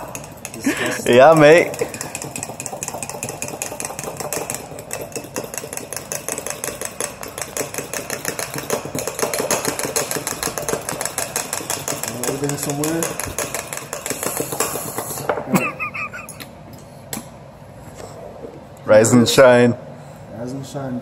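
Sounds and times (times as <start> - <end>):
utensil whisking in a mug: 0.0 - 15.3.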